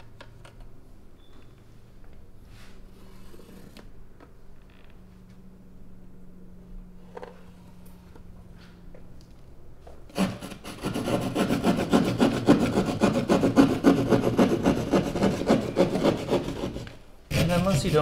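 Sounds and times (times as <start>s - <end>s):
hand saw cutting drywall: 10.1s - 18.0s.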